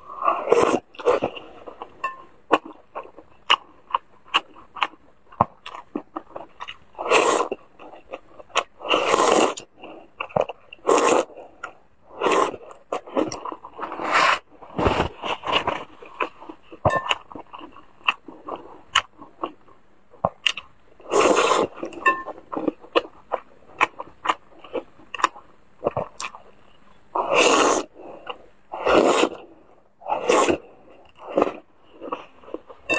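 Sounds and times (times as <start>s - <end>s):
loud noodle slurps: 0.2s - 1.3s, 7.0s - 7.6s, 8.8s - 9.6s, 10.8s - 11.3s, 12.1s - 12.6s, 21.1s - 21.8s, 27.2s - 27.9s, 28.7s - 29.4s, 30.0s - 31.6s
wet chewing: 0.4s - 14.0s, 15.2s - 26.4s.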